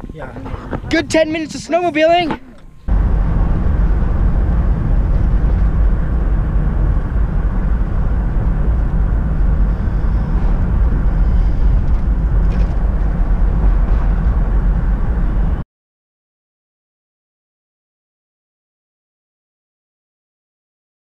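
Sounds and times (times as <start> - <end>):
truck cab road and engine rumble: 0.0 - 15.6.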